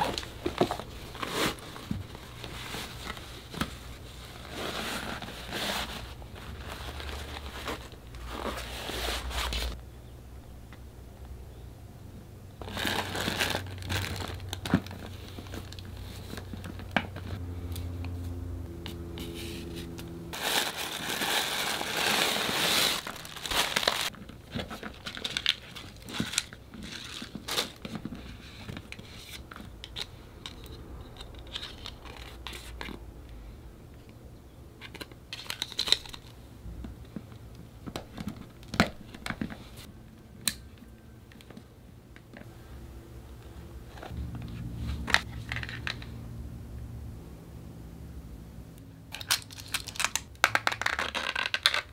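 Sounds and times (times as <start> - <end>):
plastic pouch crinkling: 12.6 - 16.8, 20.4 - 27.9, 49.1 - 51.9.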